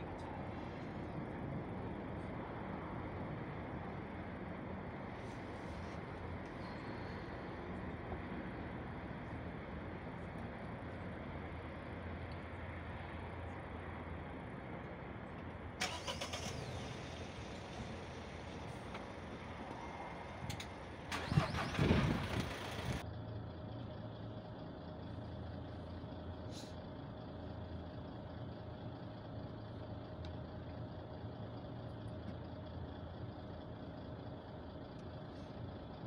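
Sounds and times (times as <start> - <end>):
distant engines droning: 0.0 - 36.0
idling vehicle engines: 0.0 - 36.0.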